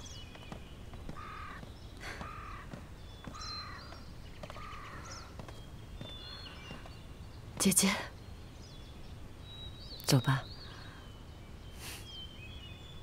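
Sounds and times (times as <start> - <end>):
small birds chirping faintly: 0.0 - 13.0
crow cawing: 1.1 - 5.3.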